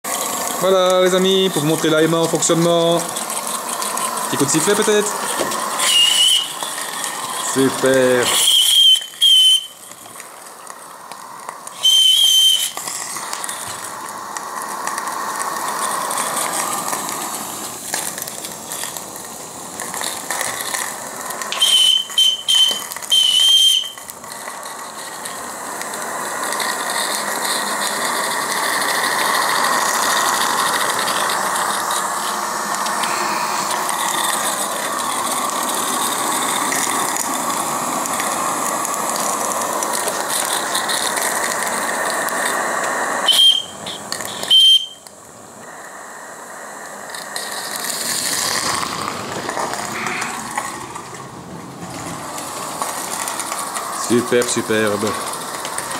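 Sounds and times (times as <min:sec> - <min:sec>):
model steam locomotive running: 0:00.0 - 0:55.9
steam hissing: 0:00.0 - 0:55.9
high-pitched steam whistle: 0:04.1 - 0:10.0, 0:11.6 - 0:17.6, 0:21.4 - 0:24.2, 0:26.1 - 0:39.6, 0:40.6 - 0:48.4.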